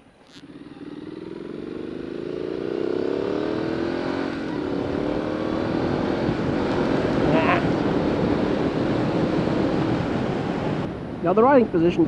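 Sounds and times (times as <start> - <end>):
motorcycle engine accelerating: 0.0 - 11.0.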